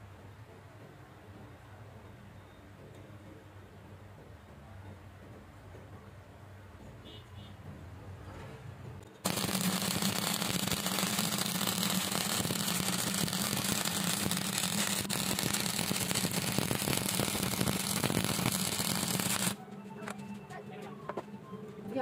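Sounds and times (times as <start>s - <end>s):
welding arc crackle and sizzle: 9.2s - 19.6s.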